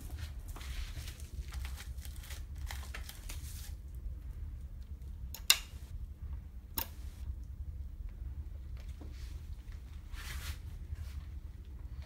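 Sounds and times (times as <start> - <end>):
rustling handling noise: 0.0 - 4.0
linkage rod clicks: 5.3 - 5.8.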